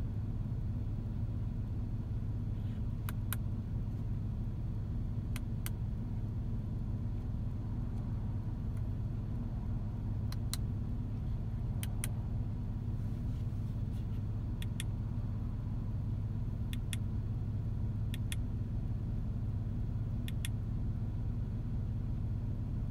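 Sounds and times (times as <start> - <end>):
low car cabin hum: 0.0 - 22.9
steering wheel buttons clicking: 14.6 - 14.9, 16.7 - 17.1, 18.1 - 18.4, 20.2 - 20.6.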